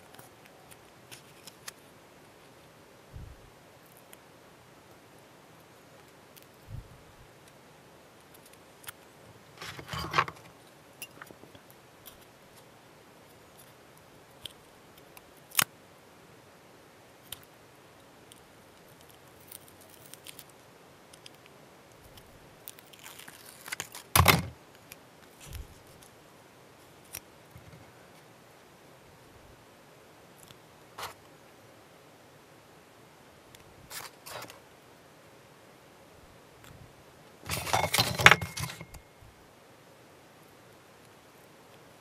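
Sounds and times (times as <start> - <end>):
rustling and scraping: 9.5 - 12.7, 27.5 - 28.2, 31.0 - 31.2, 33.9 - 34.6, 37.4 - 39.0.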